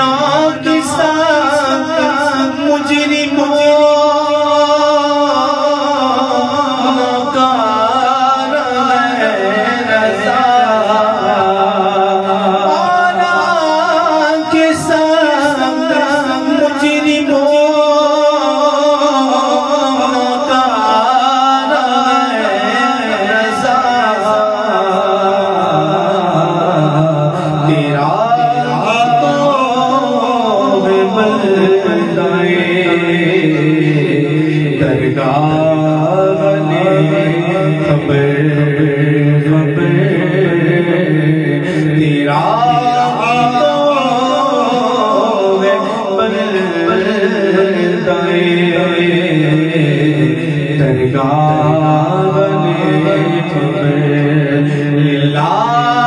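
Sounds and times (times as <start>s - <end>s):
man singing with echo: 0.0s - 56.0s.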